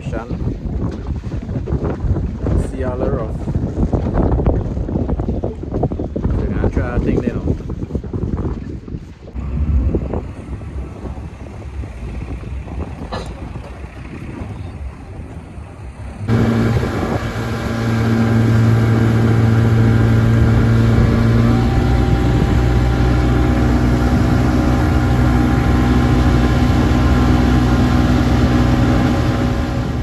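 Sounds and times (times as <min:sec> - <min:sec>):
outboard motor running: 0:09.4 - 0:30.0.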